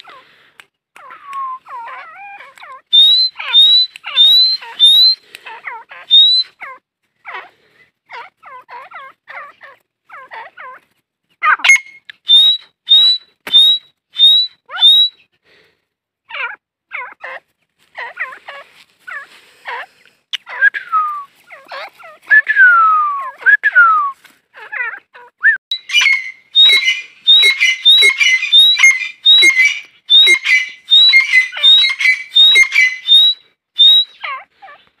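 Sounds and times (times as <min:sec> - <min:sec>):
francolins calling: 0:01.0 - 0:10.8, 0:11.4 - 0:15.3, 0:24.6 - 0:35.0.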